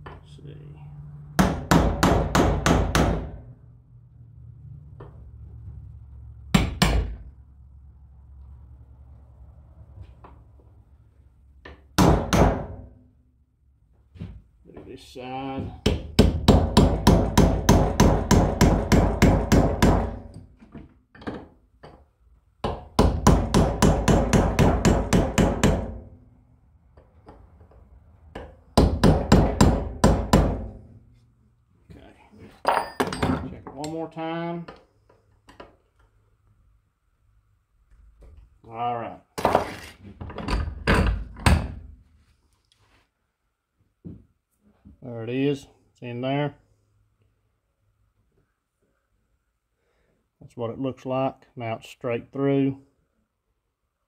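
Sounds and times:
hammer striking chisel: 0:01.4 - 0:03.4, 0:06.5 - 0:07.2, 0:11.7 - 0:12.8, 0:15.6 - 0:20.4, 0:22.6 - 0:26.1, 0:28.3 - 0:30.8.

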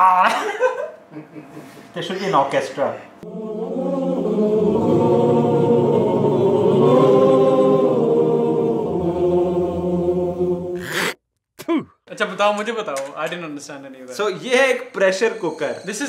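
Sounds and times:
men's choir singing in harmony: 0:03.2 - 0:10.8.

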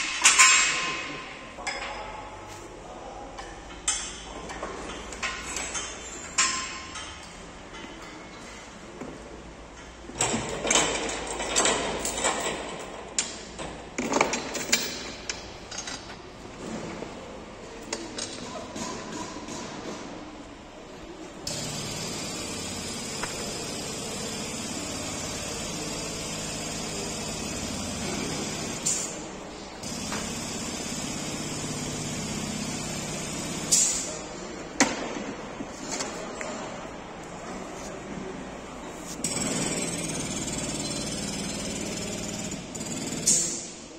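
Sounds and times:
workshop hum: 0:00.0 - 0:43.9.

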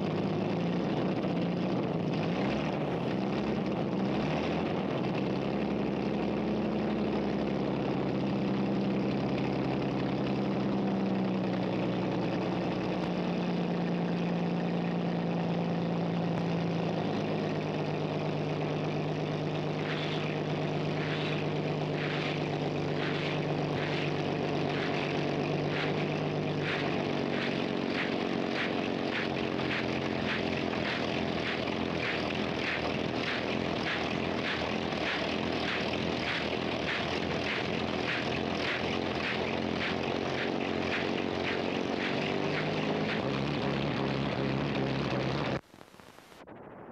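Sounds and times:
helicopter engine running: 0:16.4 - 0:45.6.

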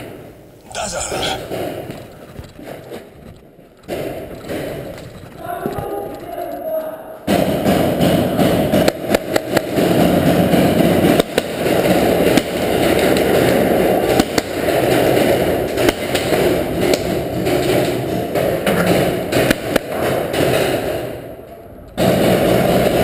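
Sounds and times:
paintballs hitting wooden barricades: 0:02.0 - 0:13.5.

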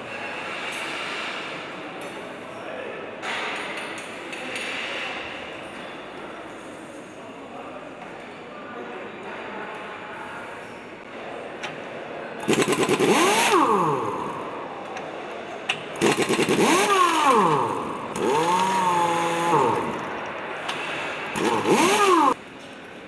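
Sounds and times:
pneumatic impact wrench hammering: 0:12.4 - 0:15.0, 0:15.7 - 0:22.4.

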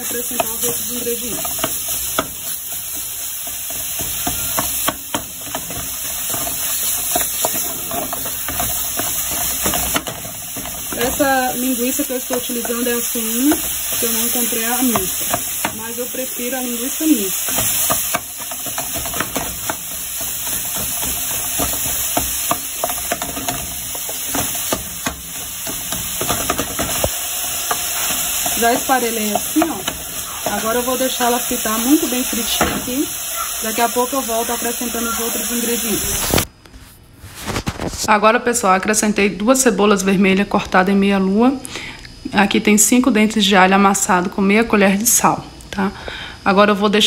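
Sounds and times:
spoon scraping and knocking pot: 0:00.0 - 0:30.8
meat sizzling in a pot: 0:00.0 - 0:36.5.

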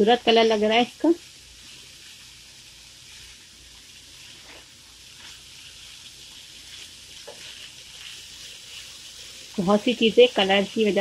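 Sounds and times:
vegetables sizzling in a frying pan: 0:00.0 - 0:11.0
wooden spatula scraping a pan: 0:03.0 - 0:11.0.

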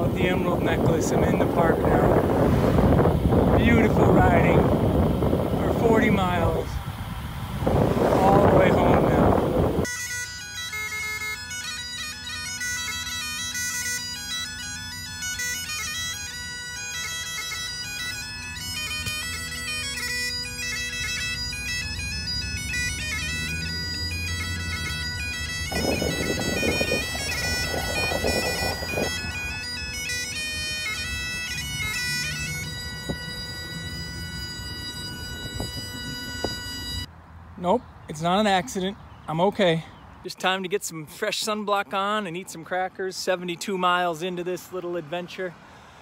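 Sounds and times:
bagpipes playing a tune: 0:00.0 - 0:37.1
rushing noise: 0:01.4 - 0:05.6, 0:06.7 - 0:09.9, 0:24.9 - 0:30.0.

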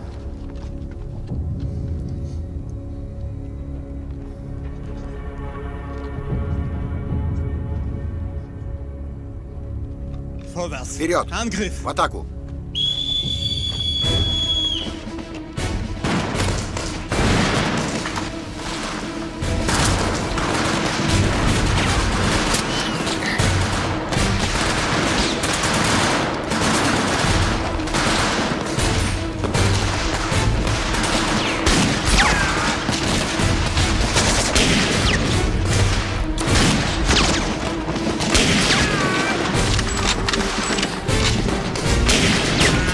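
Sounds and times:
whistle blowing: 0:12.7 - 0:15.0
rifle and machine-gun fire: 0:16.0 - 0:18.9, 0:19.6 - 0:42.9.

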